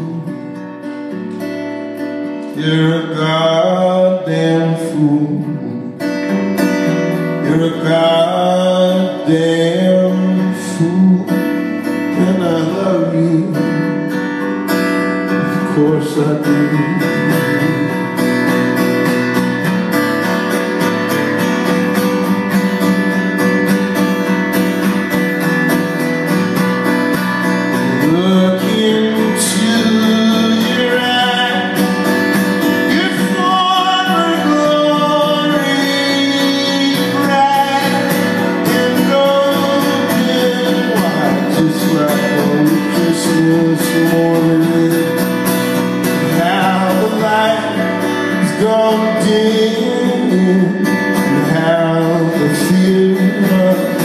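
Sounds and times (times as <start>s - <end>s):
acoustic guitar strumming: 0.0s - 54.0s
person singing wordless melody: 2.4s - 6.0s, 7.2s - 14.0s, 15.3s - 18.2s, 27.8s - 45.2s.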